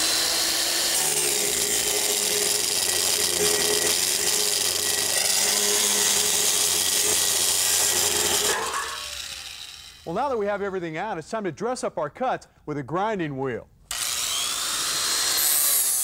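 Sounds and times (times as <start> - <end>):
angle grinder grinding steel: 0.0 - 10.5.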